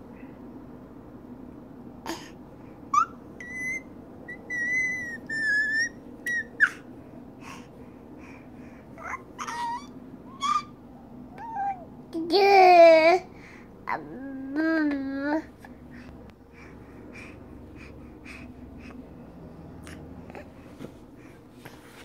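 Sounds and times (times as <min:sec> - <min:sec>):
baby squealing: 0:03.0 - 0:06.8, 0:09.0 - 0:10.8.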